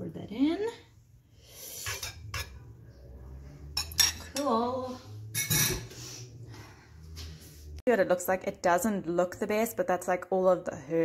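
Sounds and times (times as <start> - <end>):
bowl clinking against pan: 5.3 - 5.9.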